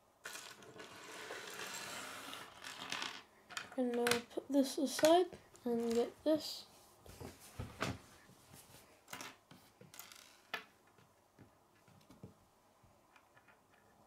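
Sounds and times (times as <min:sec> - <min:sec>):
plastic pieces clicking on wooden table: 0:00.3 - 0:04.3, 0:04.9 - 0:05.2, 0:09.1 - 0:10.7.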